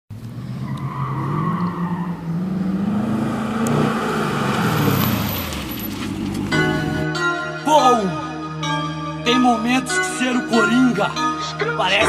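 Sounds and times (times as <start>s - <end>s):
sports car passing by: 0.2s - 7.0s.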